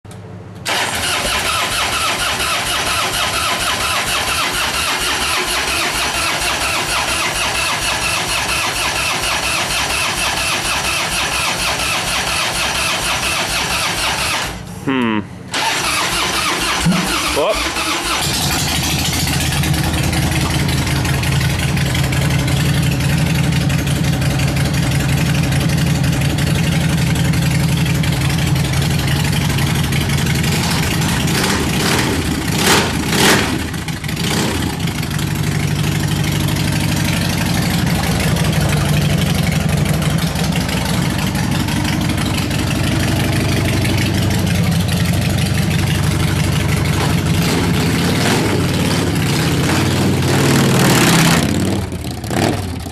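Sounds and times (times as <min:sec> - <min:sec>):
sharp engine bursts: 0:00.6 - 0:19.1
motorcycle engine idling: 0:18.0 - 0:50.3.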